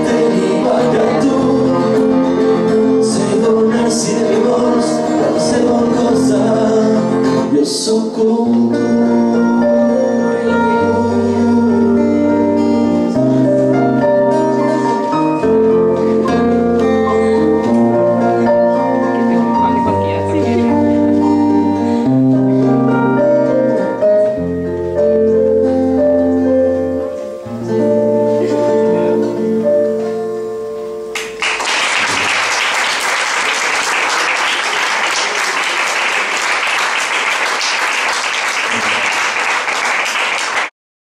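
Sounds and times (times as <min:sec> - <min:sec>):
plucked string instrument: 0:08.2 - 0:31.4
audience applause: 0:31.2 - 0:40.7.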